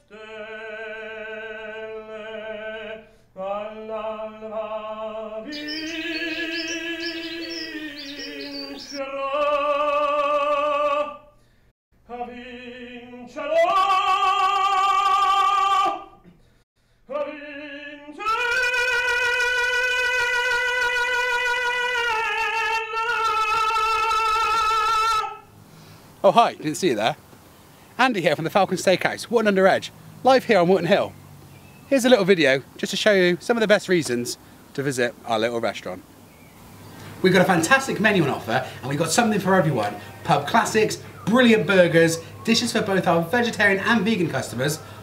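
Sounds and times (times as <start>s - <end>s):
operatic singing: 0.0s - 11.3s, 12.0s - 16.2s, 17.1s - 25.5s, 36.6s - 45.0s.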